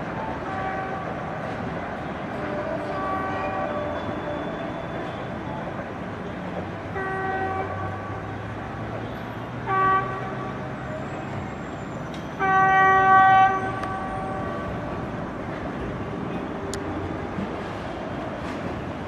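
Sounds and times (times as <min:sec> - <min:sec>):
rumble of trains: 0:00.0 - 0:19.0
locomotive horn: 0:00.3 - 0:05.4, 0:06.9 - 0:08.4, 0:09.6 - 0:11.4, 0:12.4 - 0:15.2.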